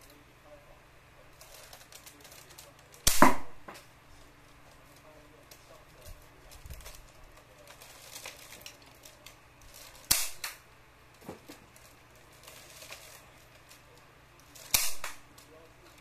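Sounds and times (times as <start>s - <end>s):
toy blaster firing snap: 3.0s - 3.4s, 10.1s - 10.6s, 14.6s - 15.2s.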